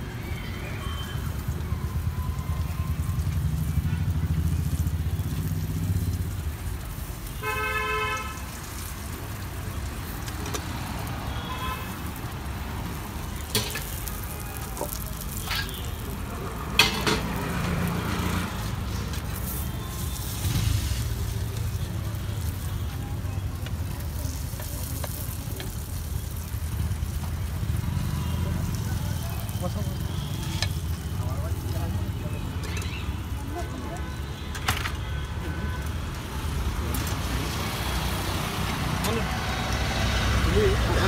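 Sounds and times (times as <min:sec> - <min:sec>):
oil sizzling in a frying pan: 0:00.0 - 0:34.3, 0:35.6 - 0:41.0
road traffic: 0:00.0 - 0:41.0
vehicle horn honking: 0:07.4 - 0:08.4.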